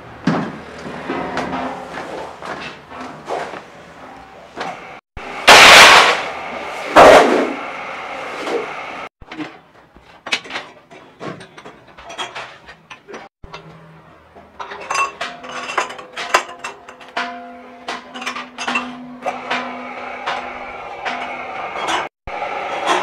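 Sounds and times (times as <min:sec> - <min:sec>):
loud metallic clatter: 0:05.3 - 0:07.6
metal clinks and knocks: 0:14.4 - 0:19.2.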